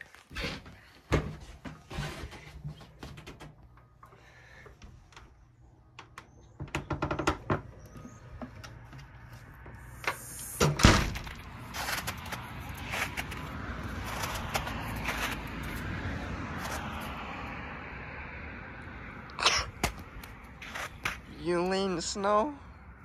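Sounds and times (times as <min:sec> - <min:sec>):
door bumping open: 0:06.0 - 0:08.9, 0:10.6 - 0:11.4.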